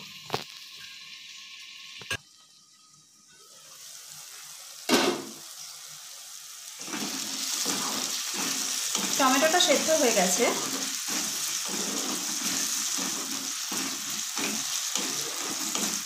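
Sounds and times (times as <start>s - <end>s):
onion and tomato sizzling in oil: 0.0s - 16.0s.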